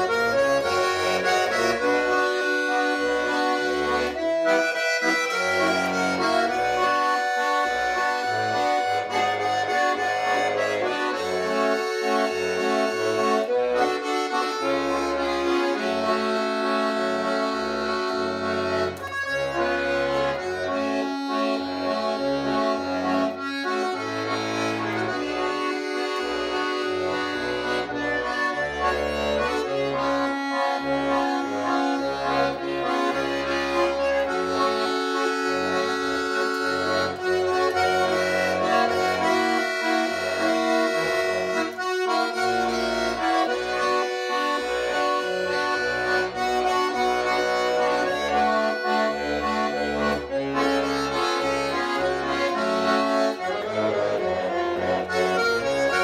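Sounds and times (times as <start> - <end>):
button accordion playing: 0.0 - 56.0.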